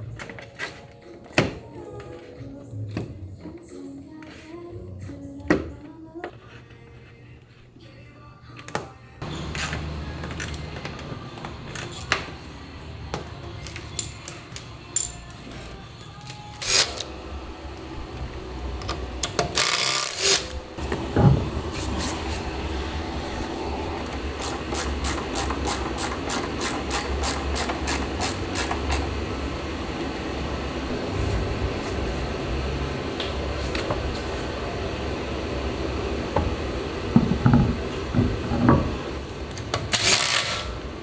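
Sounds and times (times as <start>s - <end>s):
steady low hum: 15.2s - 41.0s.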